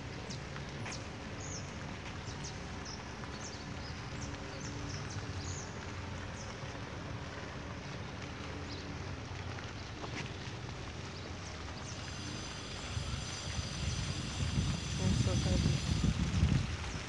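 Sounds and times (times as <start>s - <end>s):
small birds chirping: 0.1s - 6.6s.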